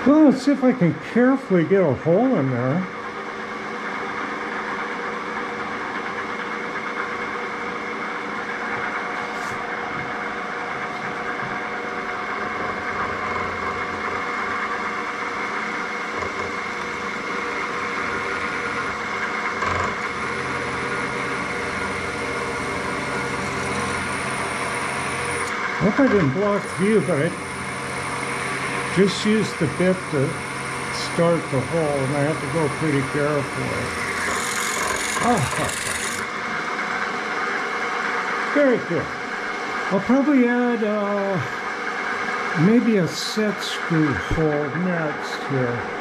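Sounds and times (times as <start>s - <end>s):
drill press motor humming: 0.0s - 46.0s
faint high whine: 20.1s - 34.2s, 34.8s - 46.0s.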